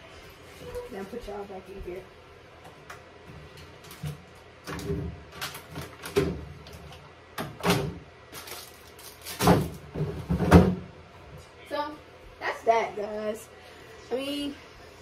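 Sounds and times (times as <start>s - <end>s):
items clunking in refrigerator: 3.8s - 10.9s.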